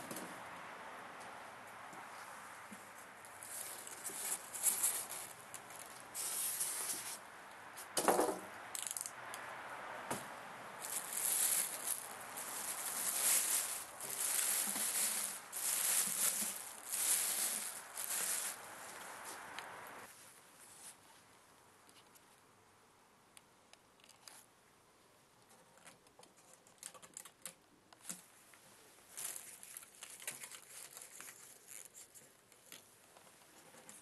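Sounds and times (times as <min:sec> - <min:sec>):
plastic wrapping crinkling: 0:03.2 - 0:07.2, 0:10.8 - 0:19.4, 0:29.1 - 0:32.1
styrofoam scraping: 0:10.8 - 0:19.4.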